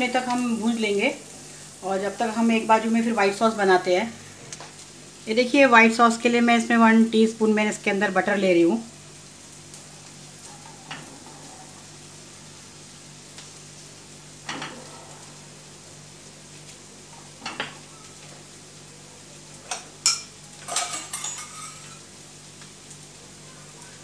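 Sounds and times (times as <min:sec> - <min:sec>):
butter sizzling in a frying pan: 0:00.0 - 0:24.0
kitchen utensils knocking and clinking: 0:19.7 - 0:22.0
spatula stirring in a pan: 0:19.7 - 0:22.1.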